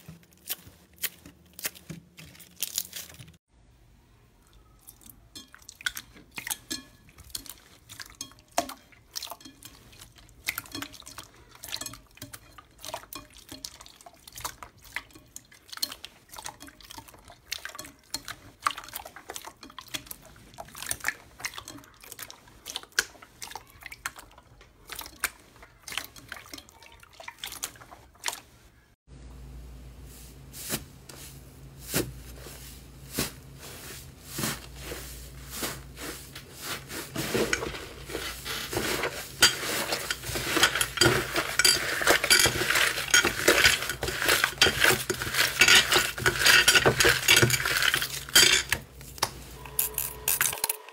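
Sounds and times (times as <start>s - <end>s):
foam slime crackling: 31.8s - 48.3s.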